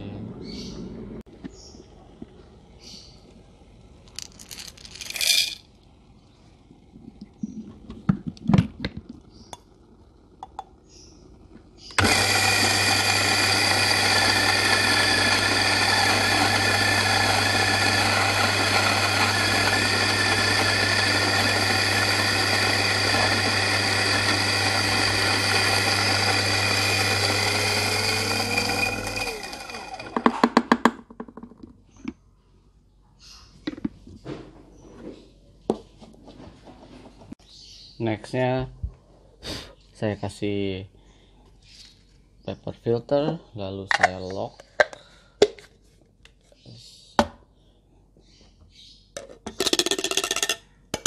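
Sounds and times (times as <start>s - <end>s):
coffee grinder motor: 11.8s - 30.7s.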